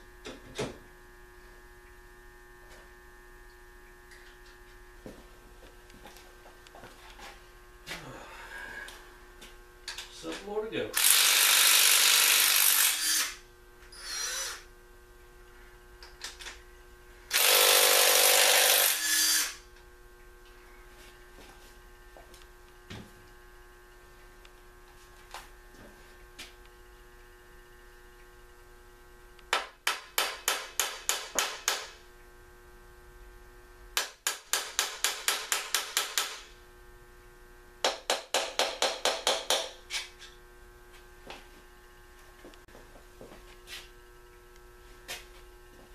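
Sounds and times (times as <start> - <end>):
steady electrical hum: 0.0 - 45.9
impact wrench running: 10.9 - 14.7, 17.3 - 19.6.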